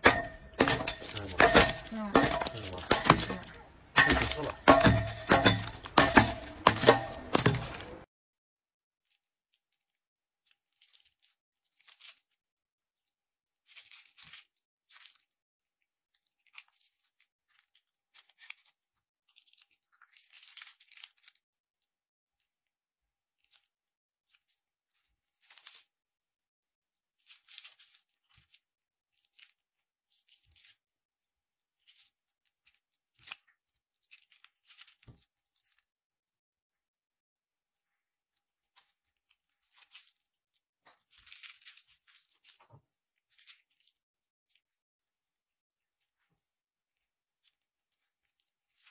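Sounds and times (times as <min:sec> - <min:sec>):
plastic bag crinkling: 0:00.1 - 0:08.0.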